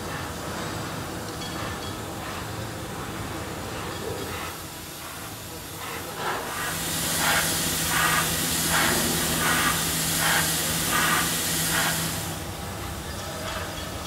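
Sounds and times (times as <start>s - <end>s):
compressed air hissing: 4.4s - 12.6s.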